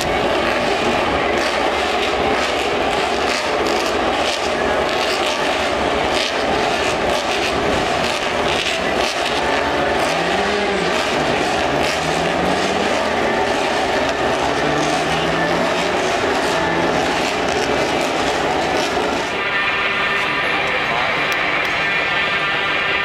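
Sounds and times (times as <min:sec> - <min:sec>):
distant engines droning: 0:00.0 - 0:23.0
outdoor background noise: 0:00.0 - 0:23.0.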